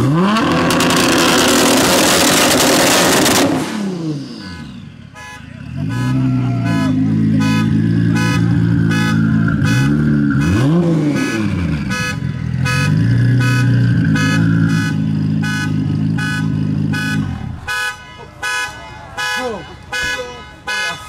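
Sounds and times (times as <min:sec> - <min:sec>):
engine revving blip: 0:00.0 - 0:05.0, 0:05.7 - 0:18.0
car alarm beeping: 0:04.2 - 0:21.0
car engine idling: 0:04.5 - 0:21.0.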